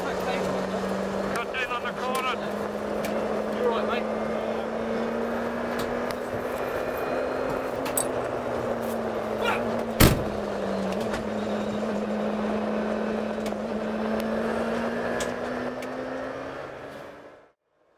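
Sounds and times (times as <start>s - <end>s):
car engine running: 0.0s - 17.5s
car door shutting: 9.8s - 10.4s.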